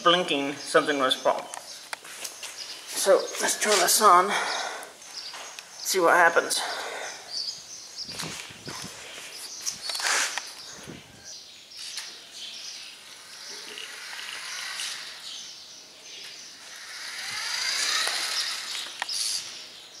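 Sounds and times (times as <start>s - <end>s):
rc car motor whining: 9.8s - 19.8s
sharp clicks: 16.2s - 19.4s.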